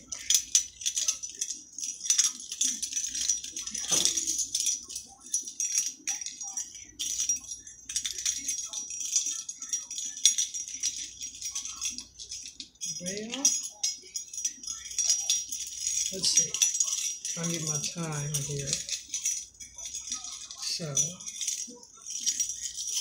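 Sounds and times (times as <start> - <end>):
metal chain necklace jingling: 0.0 - 23.0.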